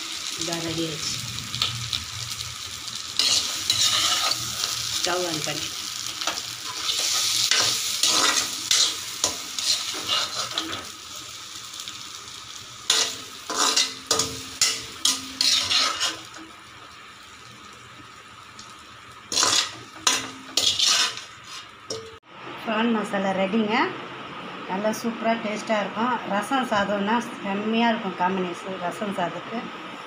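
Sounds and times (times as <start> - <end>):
food sizzling: 0.0 - 22.2
metal spoon scraping a pan: 3.2 - 4.8, 6.2 - 10.9, 12.9 - 16.4, 19.3 - 22.1.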